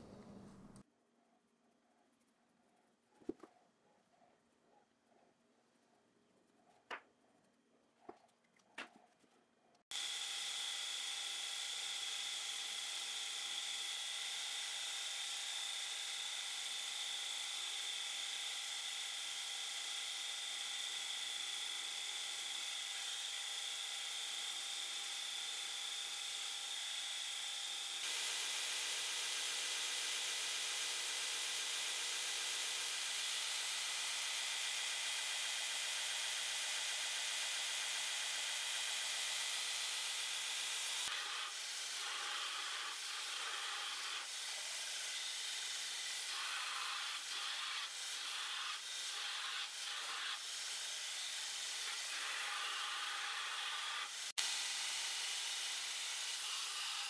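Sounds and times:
belt grinder grinding steel: 20.5s - 57.0s.

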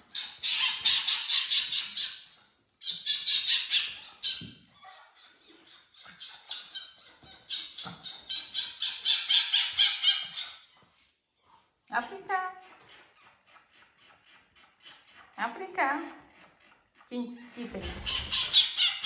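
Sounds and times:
parrot squawking: 0.0s - 10.7s, 17.8s - 19.0s.

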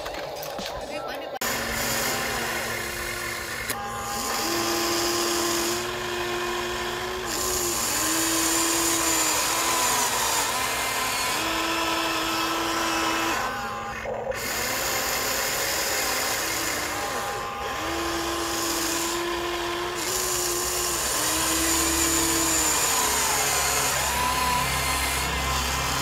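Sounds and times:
toy excavator motors whining: 0.0s - 26.0s.

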